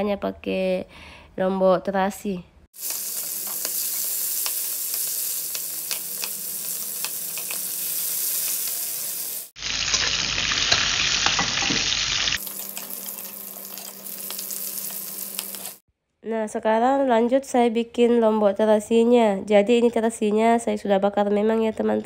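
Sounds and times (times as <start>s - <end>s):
chicken sizzling in hot oil: 2.8s - 15.8s.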